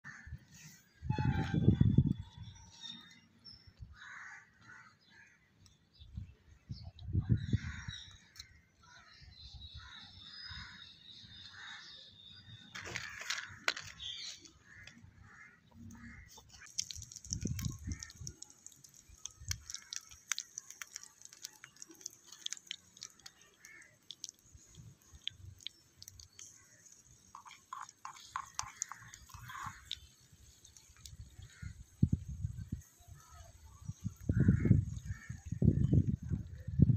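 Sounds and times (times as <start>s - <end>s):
birds chirping: 0.2s - 36.9s
wood fire crackling: 16.6s - 32.0s
spoon scraping clay pots: 26.0s - 30.8s.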